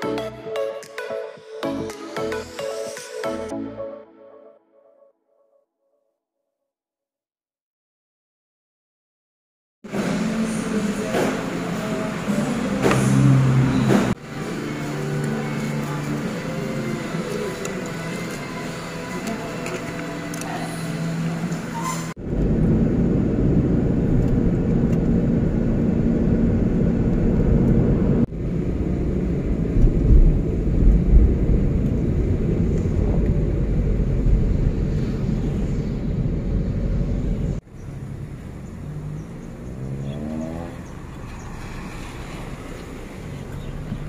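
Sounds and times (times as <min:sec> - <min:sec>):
car engine and tyres rumbling: 0:09.9 - 0:44.0.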